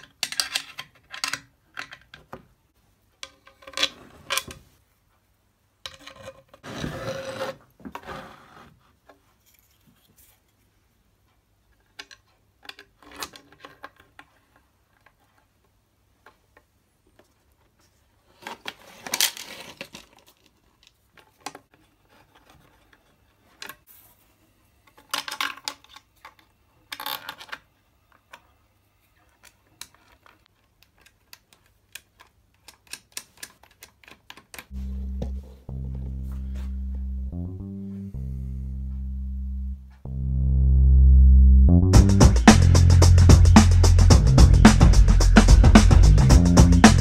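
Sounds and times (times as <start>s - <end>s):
plastic clamps clicking and scraping: 0.0s - 2.5s, 11.8s - 15.4s, 29.4s - 34.7s.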